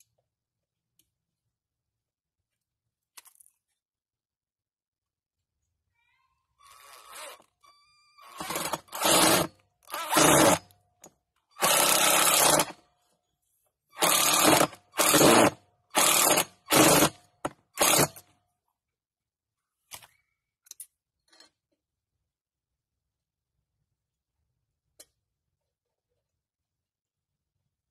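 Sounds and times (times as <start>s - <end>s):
cordless drill driving screw: 6.6s - 7.5s, 8.2s - 10.7s, 11.6s - 12.8s, 14.0s - 17.1s, 17.8s - 18.2s.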